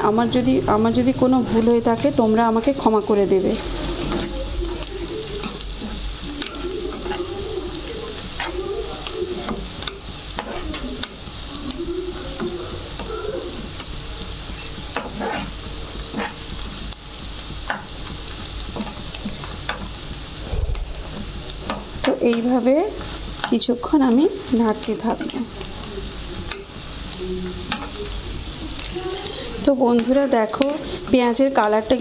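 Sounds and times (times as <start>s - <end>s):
onions sizzling in hot oil: 0.0s - 32.0s
spatula scraping pan: 1.2s - 16.9s, 27.4s - 31.4s.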